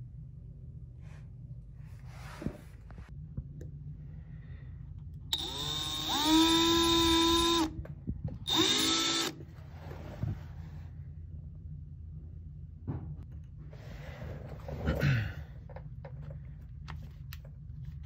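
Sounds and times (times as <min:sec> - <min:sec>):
electric drill whining: 0:05.3 - 0:07.8, 0:08.5 - 0:09.4.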